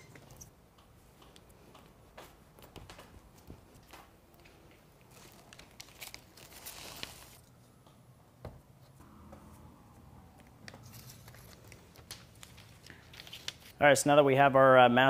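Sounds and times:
tape peeling and crinkling: 2.6s - 7.6s, 10.4s - 13.8s.

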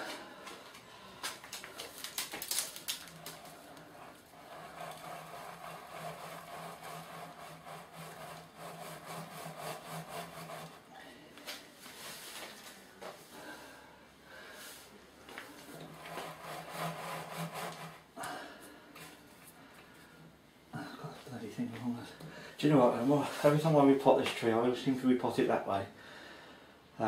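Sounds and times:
grit clicking and rattling: 0.7s - 8.5s.

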